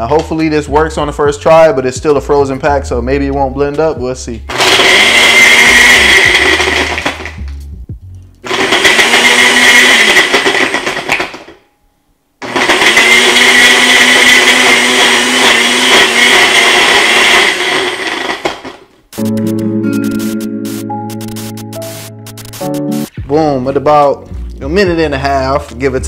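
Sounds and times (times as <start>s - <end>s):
blender crushing ice: 4.5s - 7.4s, 8.4s - 11.6s, 12.4s - 18.9s.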